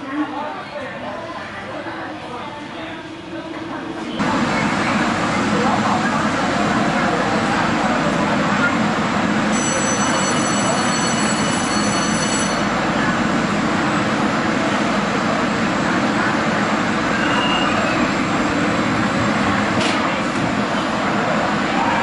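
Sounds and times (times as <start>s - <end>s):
underground station noise: 0.0s - 22.0s
train high whine: 3.4s - 22.0s
train sliding doors closing: 11.3s - 21.9s.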